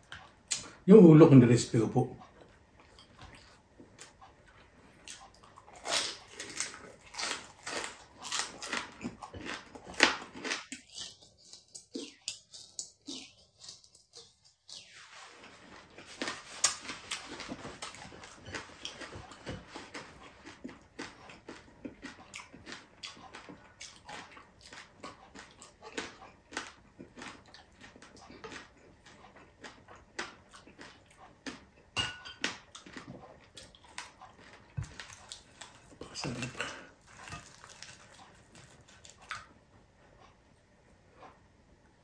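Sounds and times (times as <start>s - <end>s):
wet chewing and lip smacking: 2.2s - 39.6s
spoon clinking against pot: 32.0s - 32.4s.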